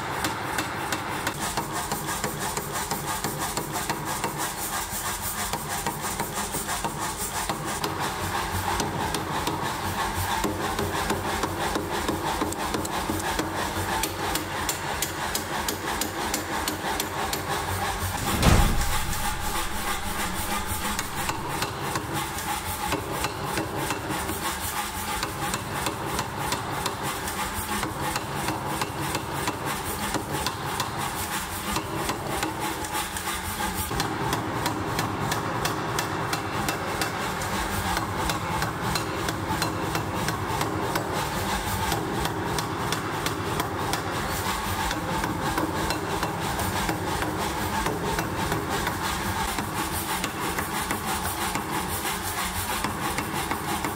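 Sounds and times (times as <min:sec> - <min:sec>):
power hammer pounding steel: 0:18.2 - 0:21.7.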